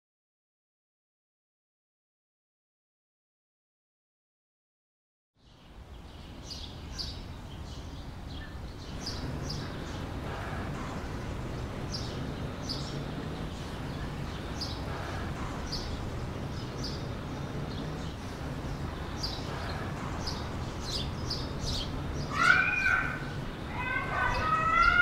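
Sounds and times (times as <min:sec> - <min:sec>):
low steady background: 0:05.4 - 0:25.0
small bird chirping: 0:05.4 - 0:25.0
rising and falling bird call: 0:06.5 - 0:25.0.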